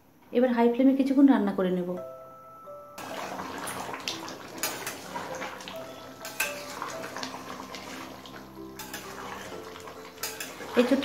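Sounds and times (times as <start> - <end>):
curry sloshing and scraping: 3.0 - 11.0.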